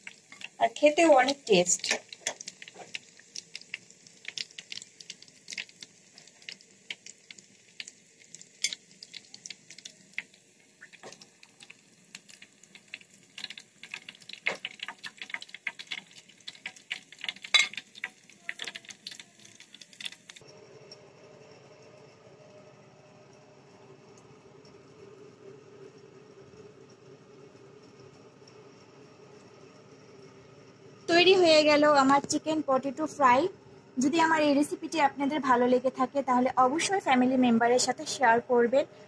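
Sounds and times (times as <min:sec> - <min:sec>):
oil sizzling and popping: 0:00.0 - 0:21.0.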